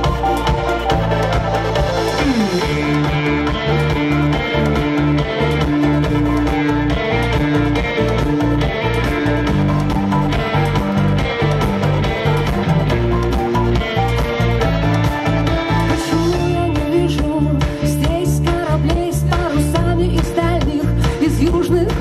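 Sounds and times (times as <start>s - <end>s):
repeating guitar notes: 0.0s - 17.4s
rock band instrumental: 0.0s - 22.0s.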